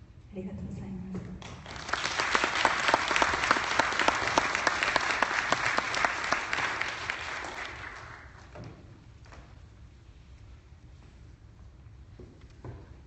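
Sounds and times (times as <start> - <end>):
audience applauding: 1.4 - 8.6.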